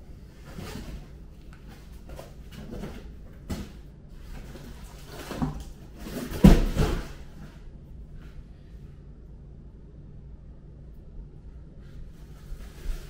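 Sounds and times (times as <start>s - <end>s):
foam and cardboard rustling: 0.3s - 7.6s, 12.1s - 13.0s
cardboard box thumps: 5.2s - 7.3s.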